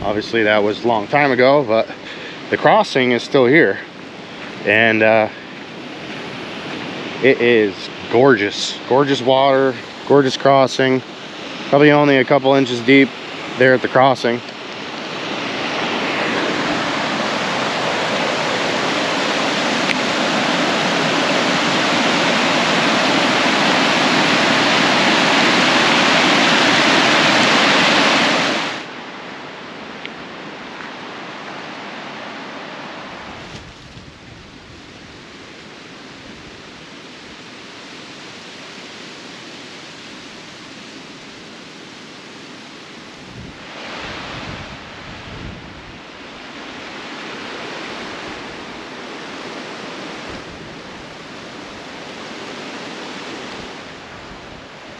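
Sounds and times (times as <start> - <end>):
wind buffeting microphone: 0.0 - 0.5, 43.1 - 47.0, 50.1 - 52.1
river water rushing over rocks: 0.0 - 54.9.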